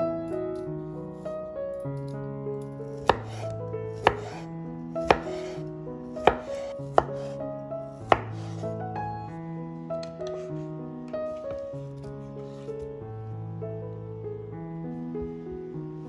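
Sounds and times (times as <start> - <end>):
background music: 0.0 - 16.0
knife striking cutting board: 2.9 - 4.4, 5.0 - 5.6, 6.2 - 7.4, 8.0 - 8.6.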